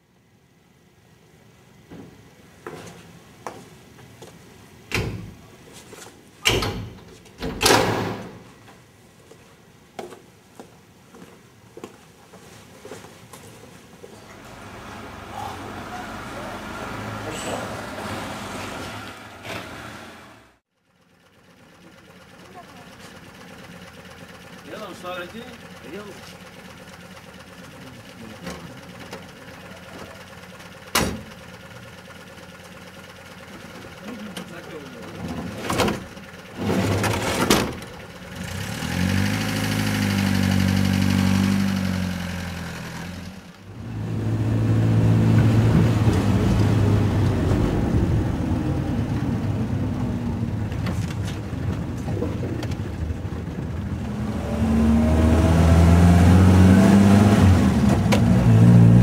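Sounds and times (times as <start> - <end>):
engine idling: 14.2 - 17.7, 20.8 - 43.9, 46.4 - 55.1.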